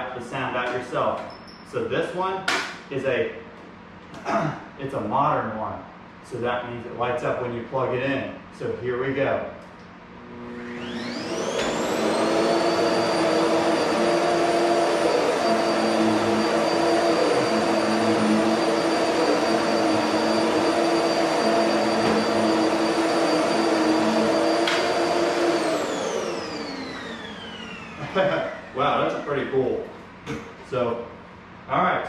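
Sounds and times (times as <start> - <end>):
vacuum cleaner motor whining: 10.2 - 29.6.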